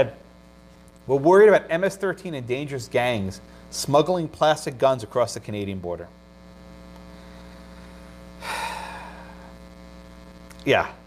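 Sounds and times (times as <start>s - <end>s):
electrical mains hum: 0.0s - 11.0s
breathy rush of noise: 7.1s - 9.8s.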